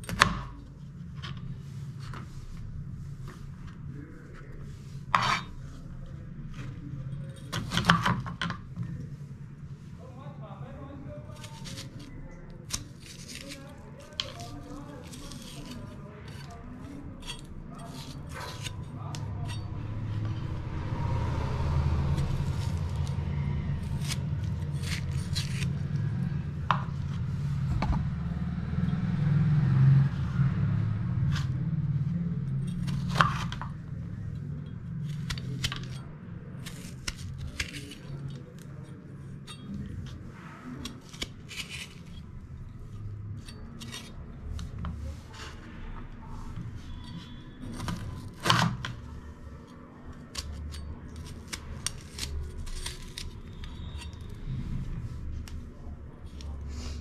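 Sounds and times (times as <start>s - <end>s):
knife scraping seeds: 11.3s - 20.3s, 22.1s - 27.2s, 35.0s - 36.0s, 36.6s - 38.9s, 40.8s - 42.3s, 43.4s - 45.6s, 50.1s - 54.6s
low rumble: 19.1s - 32.8s.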